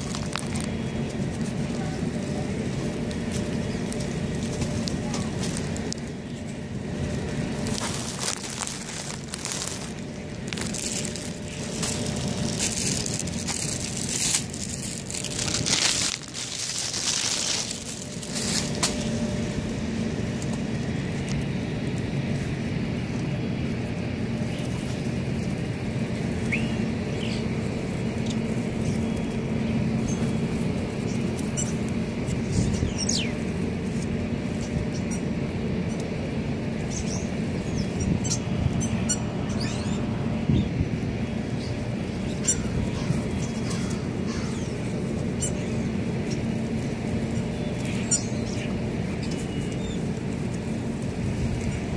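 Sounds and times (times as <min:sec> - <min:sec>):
birds wings flapping: 0:00.0 - 0:19.4
birds chirping: 0:00.0 - 0:20.3, 0:24.2 - 0:51.9.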